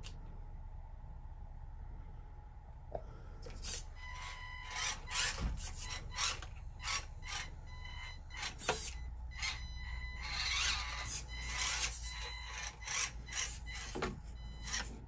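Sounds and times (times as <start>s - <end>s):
faint electric motor whine: 3.4s - 15.0s.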